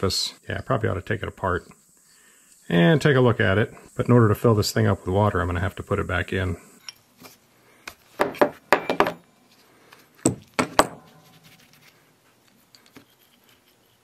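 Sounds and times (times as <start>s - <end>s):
metal clinks and taps: 8.7s - 9.2s.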